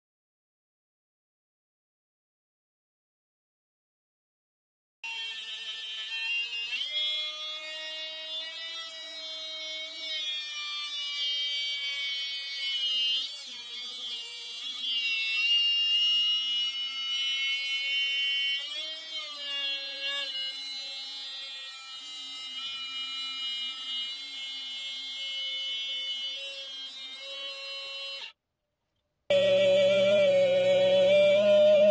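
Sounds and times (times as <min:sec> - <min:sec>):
grinder motor whine: 0:29.3 - 0:31.9.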